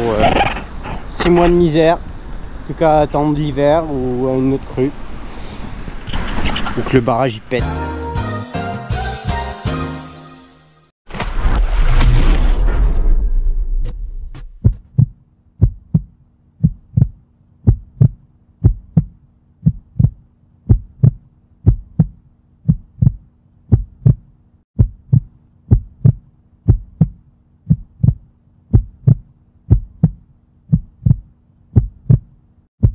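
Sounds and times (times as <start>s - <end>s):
heartbeat-like double thump: 12.6s - 24.2s, 24.8s - 32.9s.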